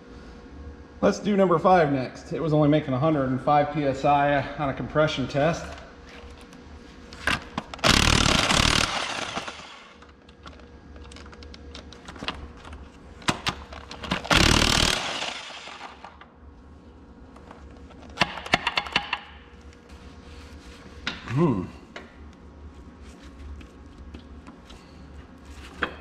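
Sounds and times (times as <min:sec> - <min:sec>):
impact wrench firing: 0:07.8 - 0:10.0, 0:14.1 - 0:16.2.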